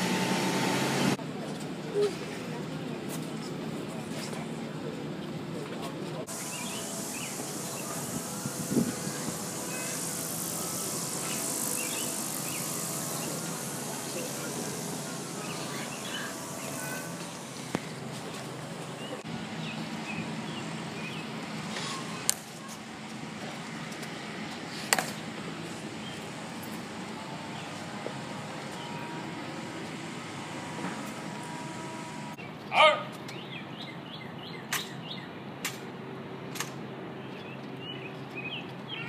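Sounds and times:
hushed crowd: 1.1s - 19.3s
loud pitched call: 6.3s - 17.3s
birds chirping: 6.3s - 21.4s, 37.2s - 39.0s.

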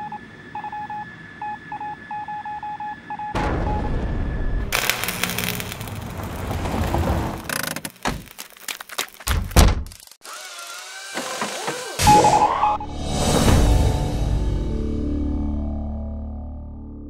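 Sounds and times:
knocks and thuds: 9.2s - 9.9s.

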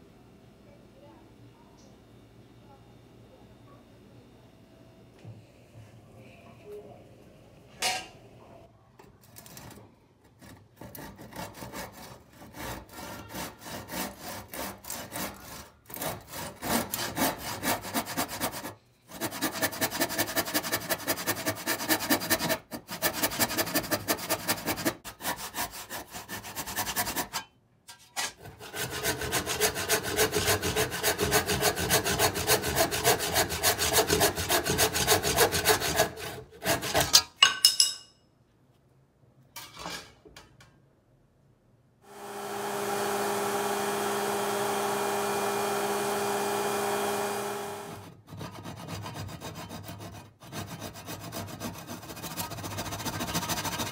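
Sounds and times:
handsaw cutting wood: 10.4s - 27.4s, 28.4s - 37.2s, 42.1s - 53.9s.

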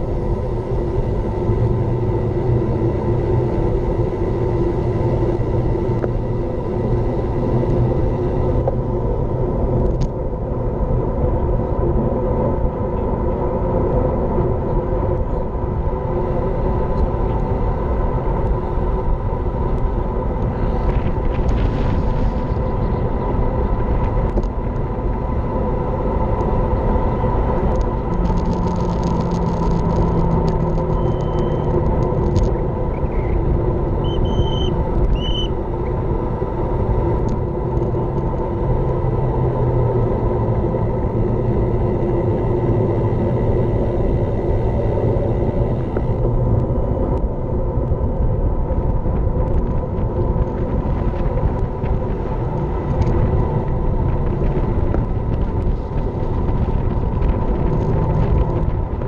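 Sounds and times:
constant hum: 0.0s - 59.0s
wind rushing over microphone: 0.0s - 59.0s.

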